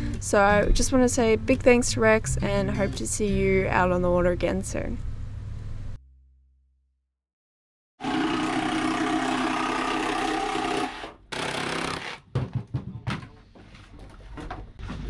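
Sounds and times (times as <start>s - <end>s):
power tool buzzing: 8.0s - 12.2s.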